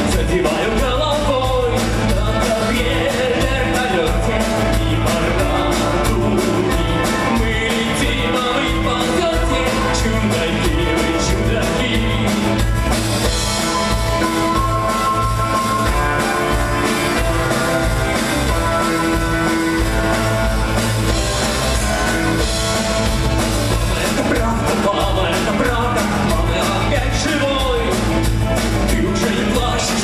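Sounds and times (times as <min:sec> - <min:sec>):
rock band playing: 0:00.0 - 0:30.0.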